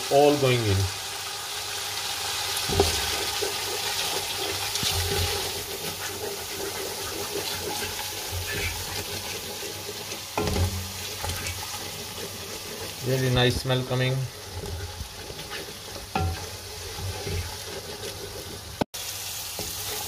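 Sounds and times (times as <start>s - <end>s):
paste sizzling in hot oil: 0.0s - 20.0s
wooden spoon stirring: 2.6s - 18.8s
spoon knocking against pan: 10.4s - 11.5s, 16.1s - 16.5s.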